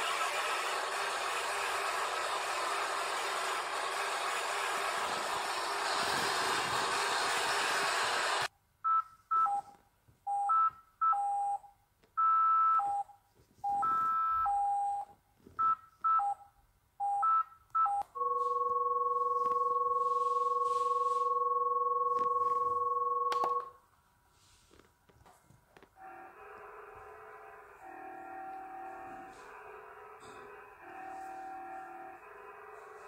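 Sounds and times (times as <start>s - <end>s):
steady alarm tone: 18.2s - 23.3s, 26.0s - 33.0s.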